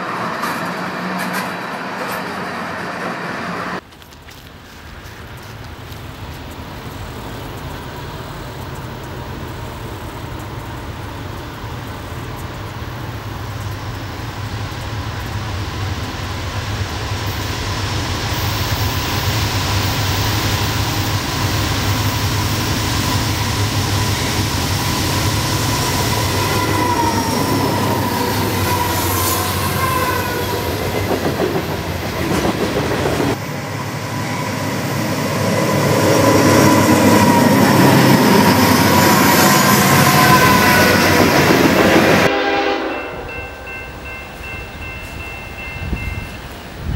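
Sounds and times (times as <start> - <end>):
diesel locomotives running: 0.0 - 46.9
train locomotives passing close: 0.0 - 46.9
high wheel squeals: 35.5 - 42.2.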